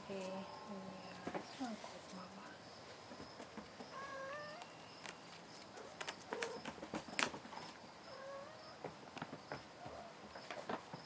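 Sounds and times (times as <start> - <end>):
cat mewing: 3.9 - 4.7.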